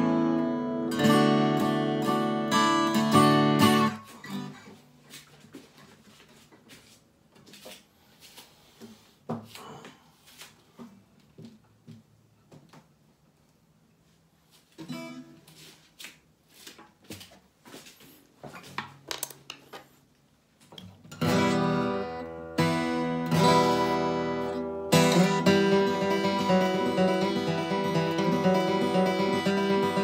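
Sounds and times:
acoustic guitar strummed chords: 0.0 - 4.8, 21.1 - 30.0
acoustic guitar single notes: 21.1 - 30.0.

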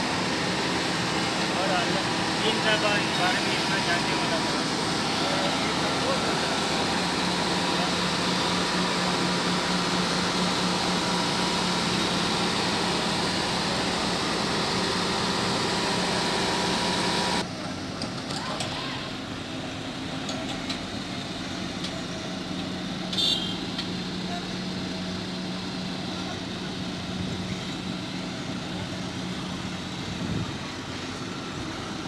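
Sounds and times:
diesel engine running: 0.0 - 32.0.

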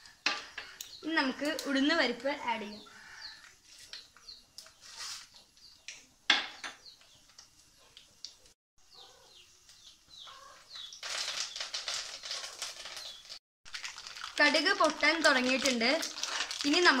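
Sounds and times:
bird chirping: 0.0 - 13.4
leaves sizzling in hot oil: 10.9 - 17.0.

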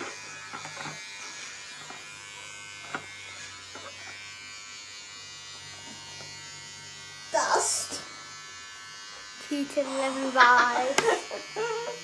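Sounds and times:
electric hair clippers buzzing: 0.0 - 12.0.

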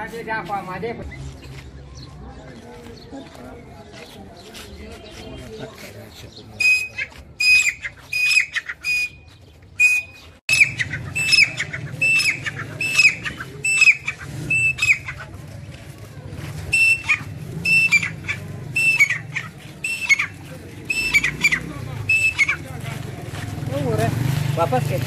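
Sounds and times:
bird calling high ringing notes: 6.6 - 15.1, 16.7 - 22.6.

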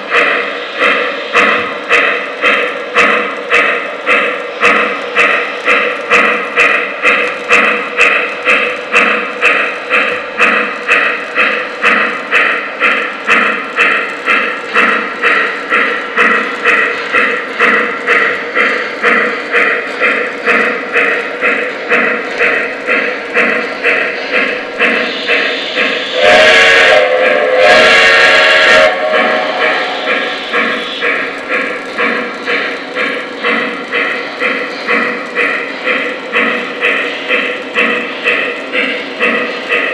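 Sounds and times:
model steam locomotive chuffing: 0.0 - 39.9
model train whistle blasts: 26.1 - 29.8.

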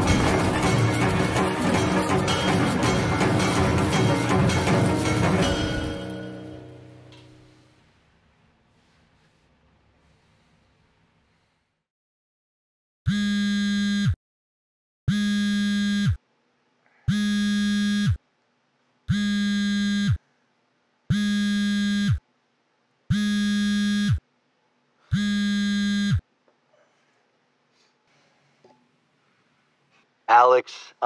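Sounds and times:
phone vibrating on wooden floor: 15.1 - 16.2, 17.1 - 18.2, 19.1 - 20.2, 21.1 - 22.2, 23.1 - 24.2, 25.1 - 26.2.

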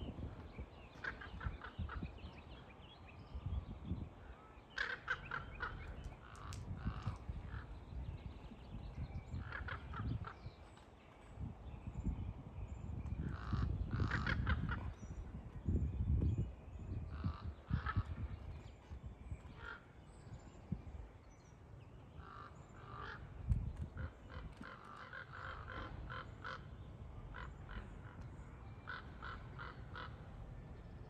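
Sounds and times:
crows cawing: 4.7 - 7.7, 19.6 - 19.8, 22.2 - 23.3, 24.0 - 28.2, 28.9 - 30.3.

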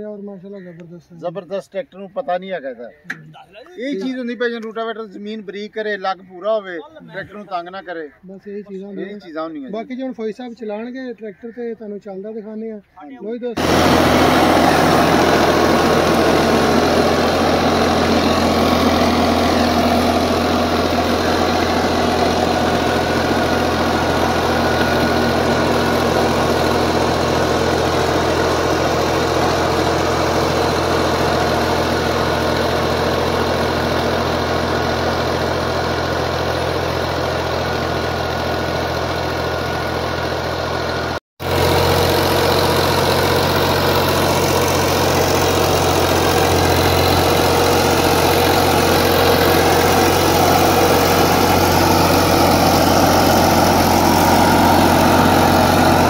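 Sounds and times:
tractor diesel engine running: 13.6 - 56.0.

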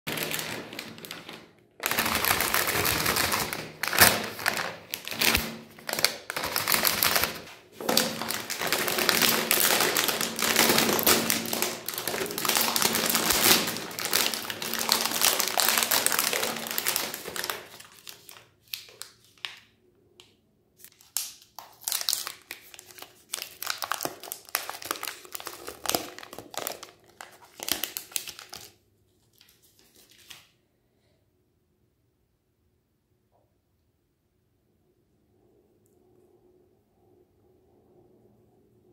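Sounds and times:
plastic wrappers crinkling and tearing: 0.1 - 19.7, 20.8 - 30.5.

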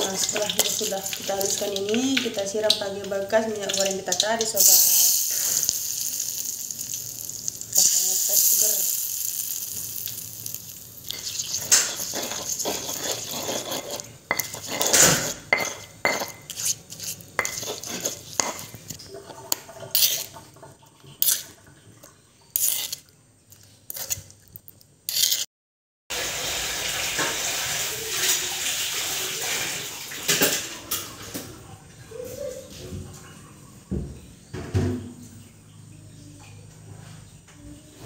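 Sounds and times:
running water hiss: 0.0 - 19.0, 26.1 - 30.8
metal utensil scraping stone mortar: 7.8 - 20.3, 21.2 - 21.6, 22.5 - 23.0, 23.9 - 24.3, 25.1 - 25.5.

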